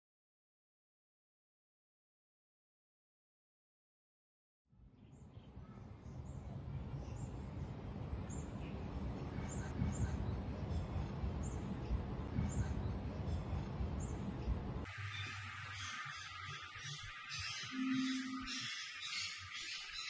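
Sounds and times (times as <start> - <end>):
birds calling: 8.3 - 20.0.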